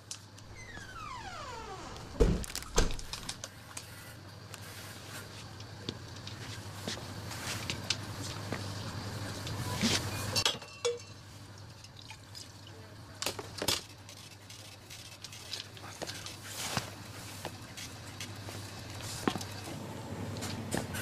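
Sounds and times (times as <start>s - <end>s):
clinks and knocks: 10.4s - 11.2s.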